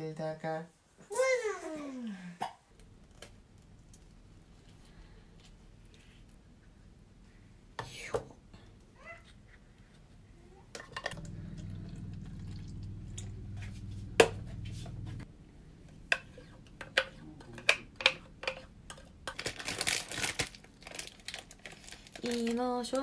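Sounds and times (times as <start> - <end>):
low steady hum: 9.7 - 22.3.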